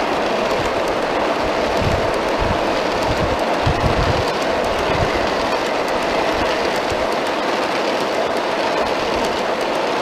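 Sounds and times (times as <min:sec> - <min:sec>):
model train cars rattling on track: 0:00.0 - 0:10.0
wheel clicks: 0:00.0 - 0:10.0.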